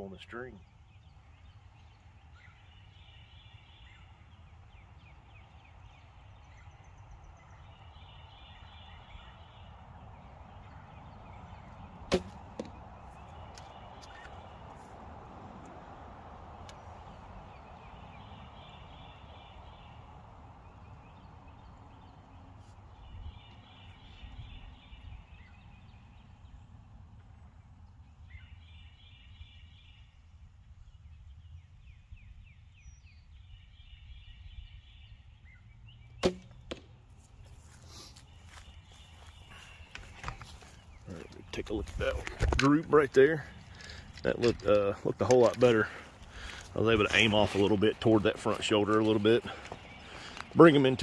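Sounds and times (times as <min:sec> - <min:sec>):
arrow striking target: 0:12.1 - 0:12.8, 0:36.2 - 0:37.0.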